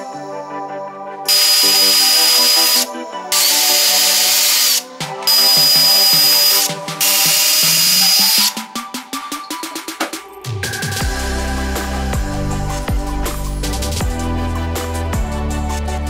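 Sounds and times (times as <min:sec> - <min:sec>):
cordless drill whining: 0:01.3 - 0:08.6.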